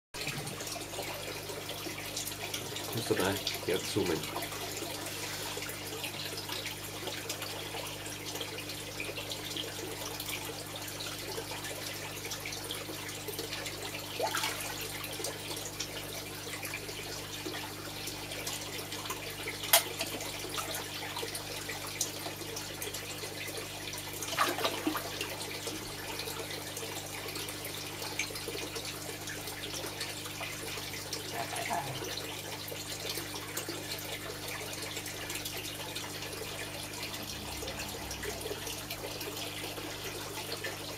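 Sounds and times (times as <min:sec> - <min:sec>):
running water: 0:00.2 - 0:40.9
fish splashing at water surface: 0:19.6 - 0:21.1, 0:24.2 - 0:25.4.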